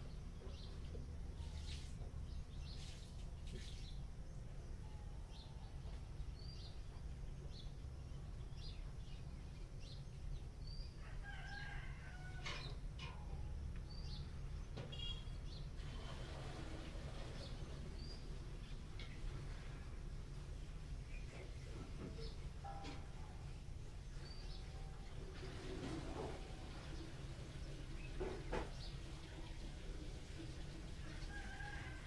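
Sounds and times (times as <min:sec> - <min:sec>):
birds chirping: 0:00.0 - 0:25.2
bird trill: 0:14.9 - 0:15.6.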